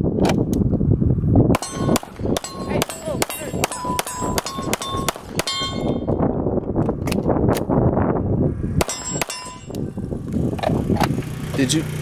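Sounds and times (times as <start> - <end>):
pistol shots: 1.6 - 6.0, 8.8 - 9.7
steel plates ringing: 1.6 - 6.2, 8.8 - 9.8.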